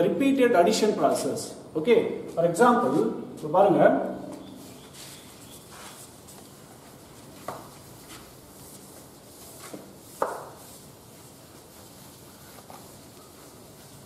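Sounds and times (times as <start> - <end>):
duster brushing chalkboard: 4.6 - 14.0.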